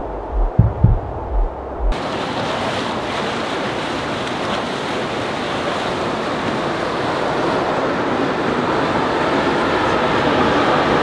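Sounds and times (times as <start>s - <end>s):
wind noise on microphone: 0.0s - 2.2s
water rushing from boat wake: 1.9s - 11.0s.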